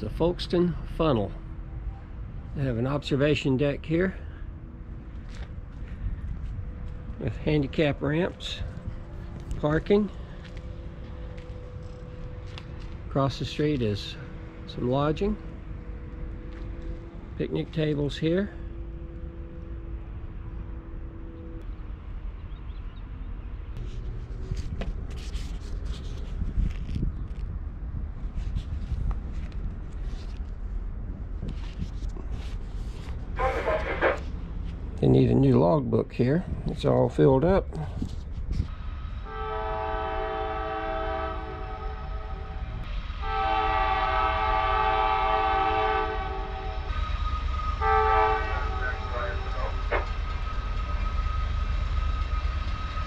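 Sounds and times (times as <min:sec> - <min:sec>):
steady low rumble: 0:00.0 - 0:39.3
locomotive air horn blasts: 0:33.4 - 0:34.2, 0:39.2 - 0:50.1.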